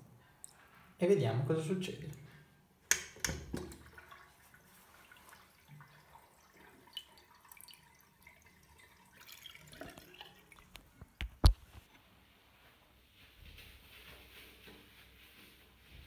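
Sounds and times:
water dripping and splashing: 2.9 - 11.2.

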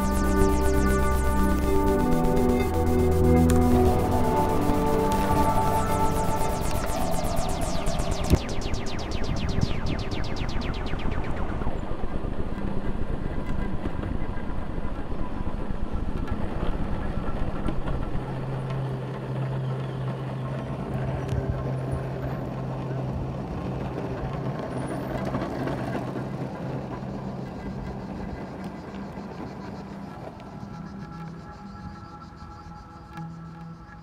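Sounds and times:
skateboard wheels rolling on asphalt: 12.6 - 31.3.

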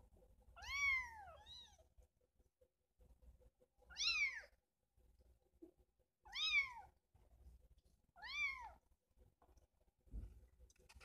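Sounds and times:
kitten meowing: 3.9 - 4.5, 6.3 - 6.9.

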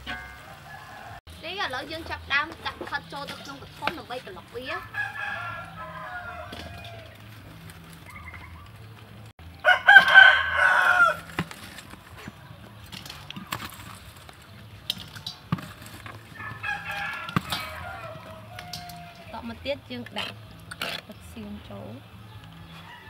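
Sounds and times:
rooster crowing: 0.4 - 1.2, 4.8 - 7.2, 9.6 - 11.4, 16.3 - 19.3, 22.3 - 23.0
utensils clicking in steel bowl: 12.9 - 16.2, 16.9 - 21.2.

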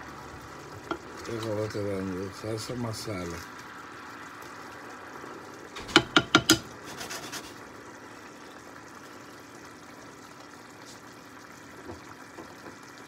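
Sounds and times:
sauce simmering: 0.0 - 13.0
ladle knocking on steel skillet: 5.8 - 6.7.

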